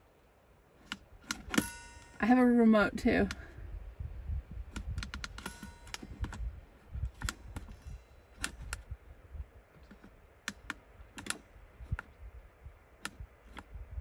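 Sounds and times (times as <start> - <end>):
plastic buttons clicking: 4.7 - 6.5, 7.1 - 7.8, 9.8 - 12.1.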